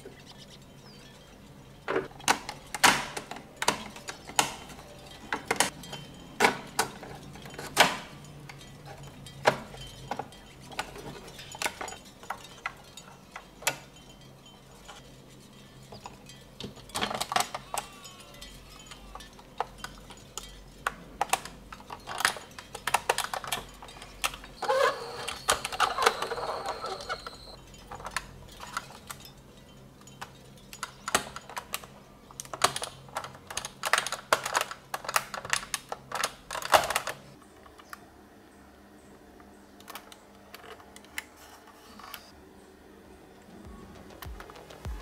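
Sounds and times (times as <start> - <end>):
toy parts clicking and tapping: 2.0 - 38.0.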